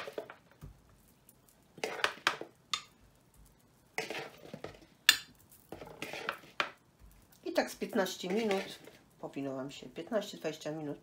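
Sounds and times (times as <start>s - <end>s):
metal utensil scraping ceramic bowl: 4.0s - 4.8s, 5.7s - 6.7s, 8.1s - 9.0s.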